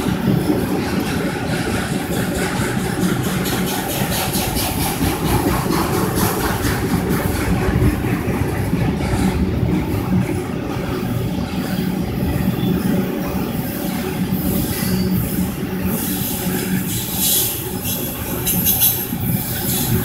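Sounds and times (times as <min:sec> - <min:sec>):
train wheel squeal: 0:00.0 - 0:07.8, 0:10.9 - 0:20.0
freight train rumbling past: 0:00.0 - 0:20.0.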